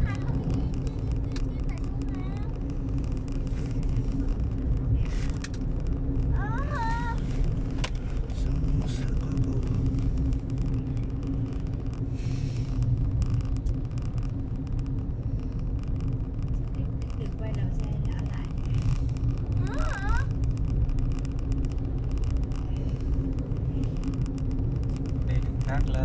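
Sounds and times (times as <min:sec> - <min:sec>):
car engine hum: 0:00.0 - 0:26.0
tyres rumbling on road: 0:00.0 - 0:26.0.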